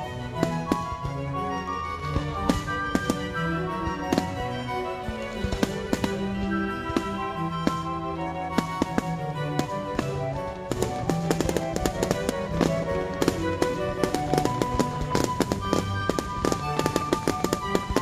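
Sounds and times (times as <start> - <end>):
fireworks bursting and crackling: 0.0 - 18.0
music: 0.0 - 18.0.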